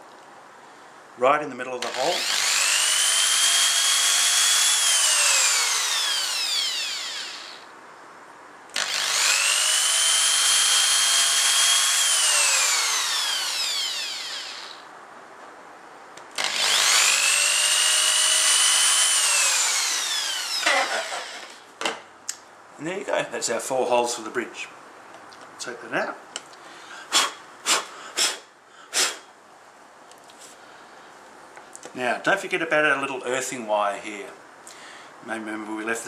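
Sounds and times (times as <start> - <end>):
electric drill whining: 1.8 - 7.7, 8.7 - 14.8, 16.4 - 21.6.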